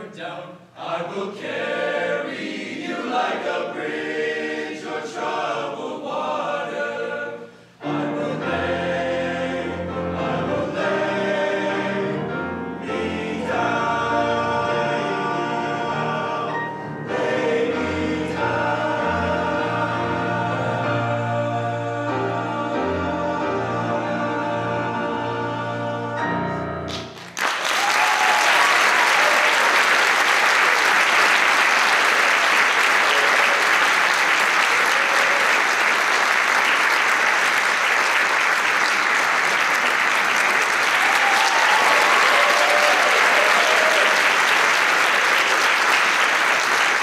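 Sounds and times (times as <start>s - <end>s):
men's choir singing chord: 0.8s - 26.6s
audience applause: 26.9s - 47.0s
audience cheering and whooping: 27.6s - 30.0s, 40.8s - 44.5s.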